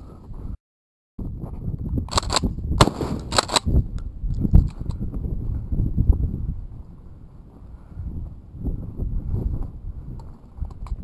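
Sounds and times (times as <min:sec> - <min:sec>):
shotgun shots: 0:02.1 - 0:03.7.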